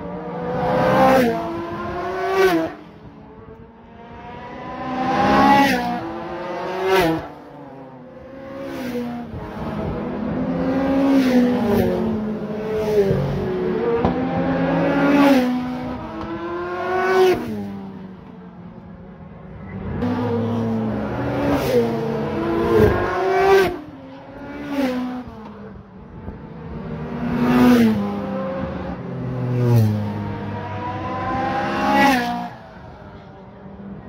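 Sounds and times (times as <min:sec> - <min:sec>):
race cars passing at speed: 0:00.0 - 0:34.0.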